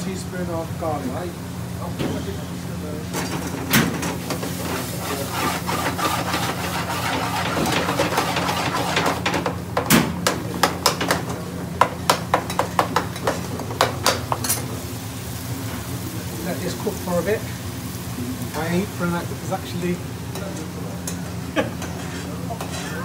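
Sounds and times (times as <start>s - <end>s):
low kitchen hum: 0.0s - 23.0s
metal spoon scraping frying pan: 4.4s - 9.2s.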